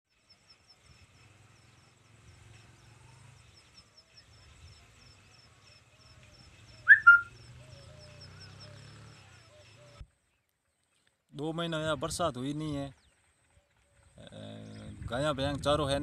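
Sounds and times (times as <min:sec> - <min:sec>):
bird calls: 0:03.4 - 0:11.2
high-pitched chirping: 0:06.9 - 0:07.4.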